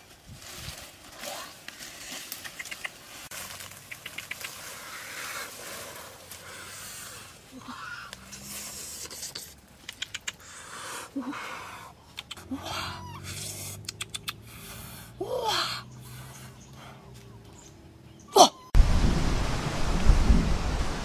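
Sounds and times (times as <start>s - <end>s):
rustling grass and leaves: 0.0s - 15.1s, 18.8s - 21.0s
sharp clicks: 9.8s - 10.4s, 13.8s - 14.4s.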